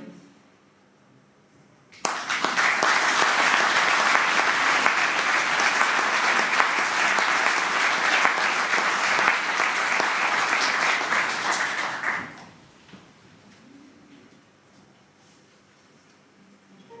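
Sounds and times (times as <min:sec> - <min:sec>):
audience applauding: 0:02.0 - 0:12.6.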